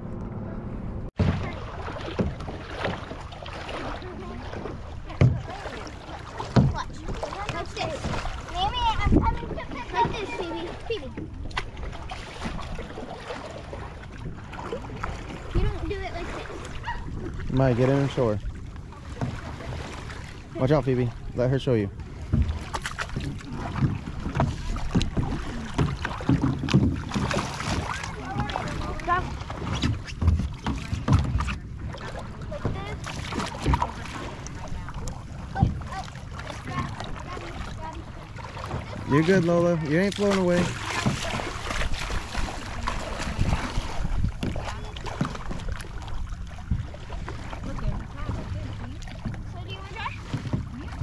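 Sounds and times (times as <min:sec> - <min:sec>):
kayak knocks and splashes: 0:01.2 - 0:51.0
small knocks from kayak: 0:05.1 - 0:05.5, 0:06.4 - 0:08.2, 0:11.2 - 0:11.8, 0:22.2 - 0:28.8, 0:29.5 - 0:36.0, 0:44.2 - 0:49.5
wind rumble on microphone: 0:08.1 - 0:09.9, 0:41.0 - 0:49.6.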